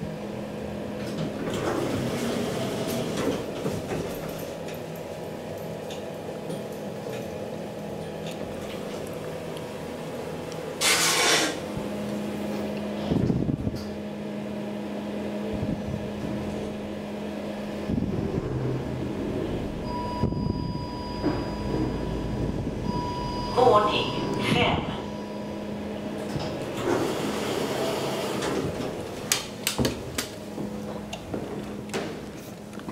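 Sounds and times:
elevator doors rushing: 0.0s - 9.0s, 15.5s - 32.3s
machinery hum: 0.0s - 32.9s
steady high tone: 18.9s - 26.1s.

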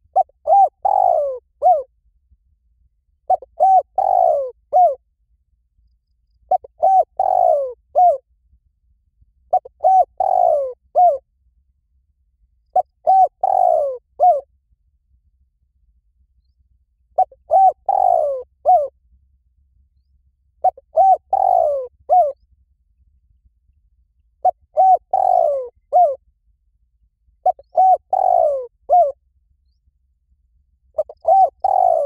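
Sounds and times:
dove cooing: 0.0s - 1.9s, 3.3s - 5.0s, 6.5s - 8.2s, 9.5s - 11.2s, 12.7s - 14.4s, 17.2s - 18.9s, 20.6s - 22.4s, 24.4s - 26.2s, 27.4s - 29.2s, 31.0s - 32.0s.

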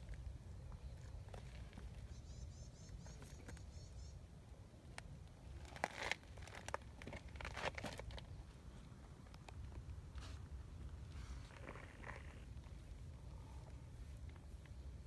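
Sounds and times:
dry leaves and gravel crunching: 0.0s - 4.1s, 4.8s - 15.0s
faint high chirping: 0.7s - 4.2s.

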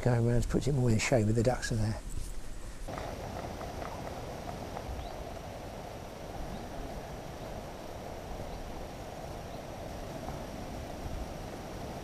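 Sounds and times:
faint bird chirps: 4.8s - 5.4s.

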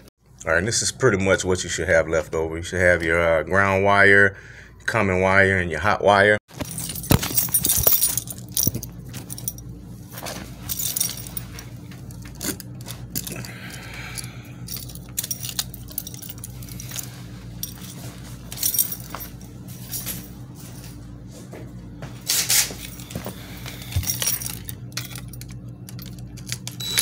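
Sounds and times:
small metal objects jingling: 6.5s - 11.6s, 13.0s - 20.4s
steady low hum: 6.5s - 27.0s.

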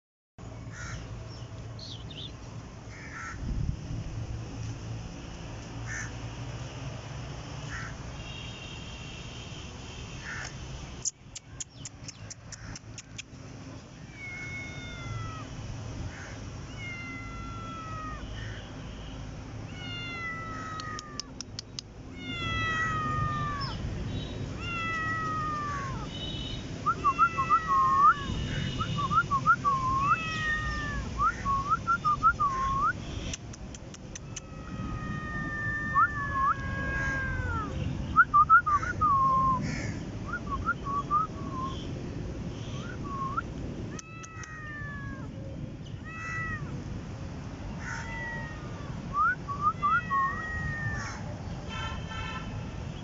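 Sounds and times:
quick ticks: 10.4s - 13.4s, 20.8s - 22.0s, 33.2s - 34.5s
kitten meowing: 14.0s - 15.6s, 16.7s - 18.3s, 19.7s - 23.9s, 24.5s - 26.1s, 27.0s - 28.5s, 29.7s - 31.2s, 34.0s - 37.8s, 43.9s - 45.3s, 46.0s - 46.7s, 47.8s - 51.3s.

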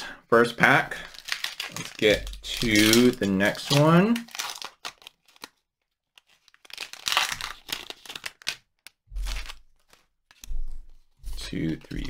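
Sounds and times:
foil wrapper crinkling and tearing: 0.9s - 10.5s.

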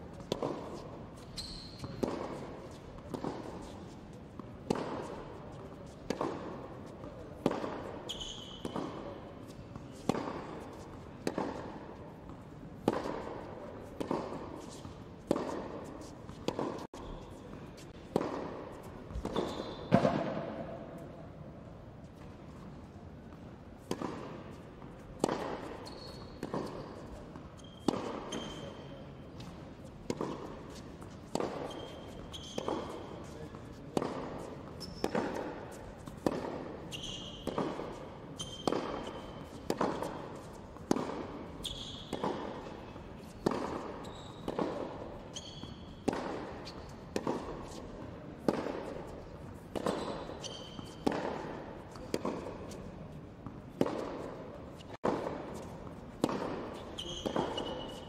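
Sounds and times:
racquet striking tennis ball: 0.2s - 21.1s, 23.8s - 58.0s
shoe squeaks on court: 0.3s - 2.9s, 7.8s - 10.1s, 19.1s - 20.8s, 25.6s - 29.6s, 30.2s - 33.8s, 34.4s - 36.2s, 36.8s - 40.5s, 41.4s - 47.8s, 49.8s - 51.1s, 56.6s - 58.0s.

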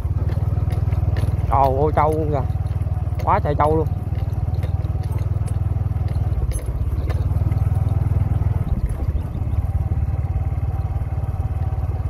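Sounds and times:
light knocks from bumps: 0.0s - 9.4s
small motorbike engine running: 0.0s - 12.0s.

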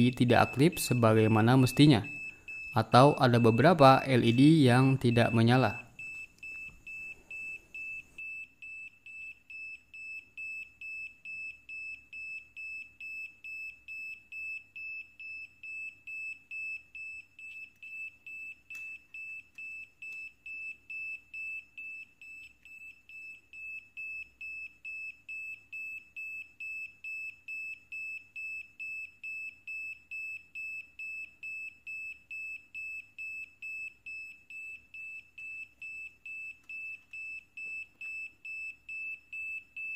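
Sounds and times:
buzzer beeping: 0.0s - 39.9s.

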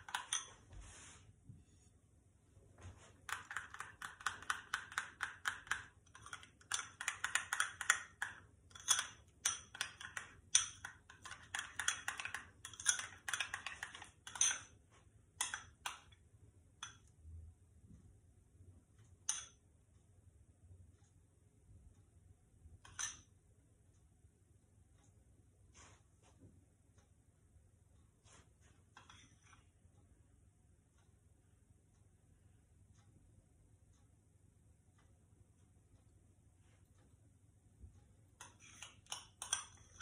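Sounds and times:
teaspoon clinking against bowl: 3.3s - 14.7s.

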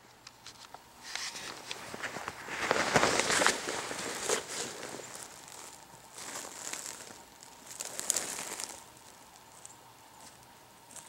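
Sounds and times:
rustling in dry leaves and twigs: 0.5s - 11.0s.

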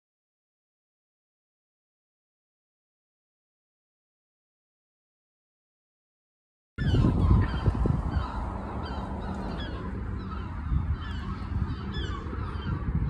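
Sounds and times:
birds calling: 6.8s - 13.0s.

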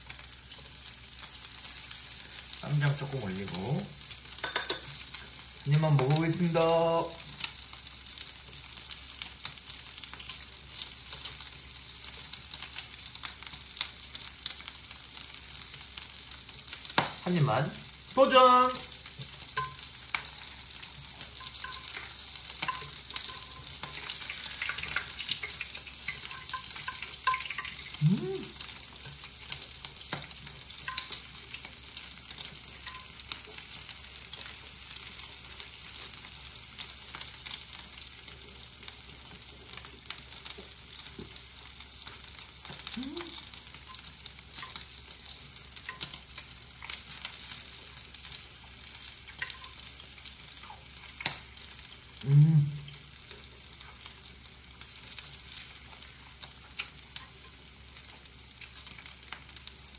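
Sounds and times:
pork sizzling on grill pan: 0.0s - 59.9s
man humming while chewing: 27.9s - 28.7s, 42.8s - 43.5s, 52.2s - 53.0s.

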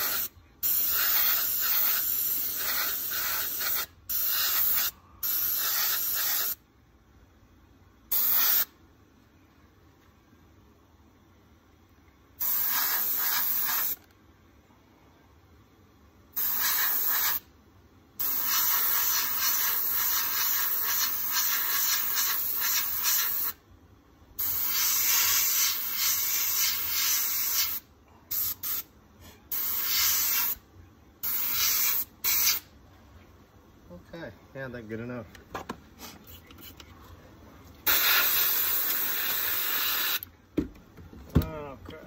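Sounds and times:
airbrush spraying hiss: 0.0s - 6.6s, 8.1s - 8.8s, 12.4s - 14.1s, 16.3s - 17.5s, 18.2s - 23.6s, 24.4s - 28.9s, 29.5s - 30.6s, 31.2s - 32.7s, 37.8s - 40.3s.

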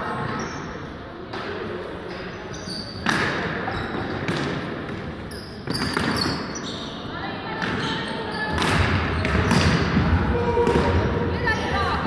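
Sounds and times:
hockey sticks striking ball: 3.0s - 6.6s, 7.6s - 11.2s.

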